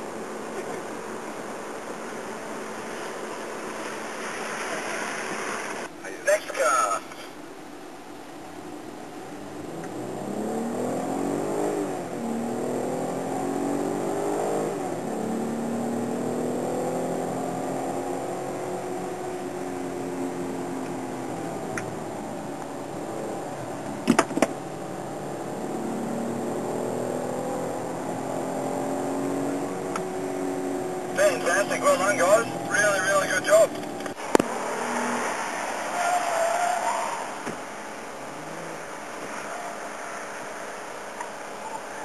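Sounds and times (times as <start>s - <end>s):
car engine accelerating: 9.4s - 42.0s.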